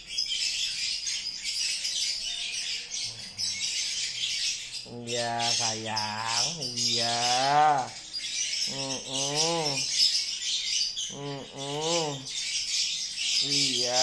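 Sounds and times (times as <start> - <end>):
small birds chirping: 0.0 - 14.0
low drawn-out voice sounds: 4.9 - 8.0, 8.7 - 9.9, 11.1 - 12.3, 13.5 - 14.0.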